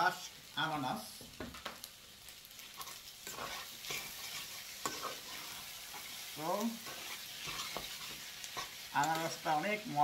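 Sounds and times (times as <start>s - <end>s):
rice sizzling in frying pan: 0.0s - 10.0s
spatula scraping and knocking pan: 2.8s - 6.2s, 6.8s - 8.8s.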